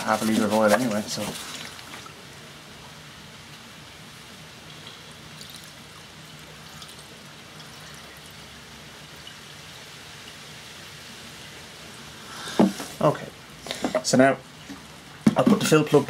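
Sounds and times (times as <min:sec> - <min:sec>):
liquid trickling from bottle: 0:01.3 - 0:02.2, 0:04.6 - 0:08.5.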